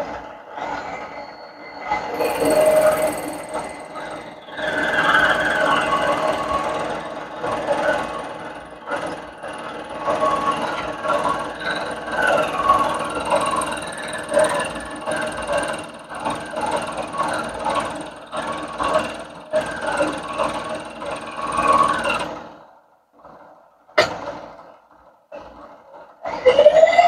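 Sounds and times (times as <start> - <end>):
milling machine cutting plastic: 2.1 - 22.2.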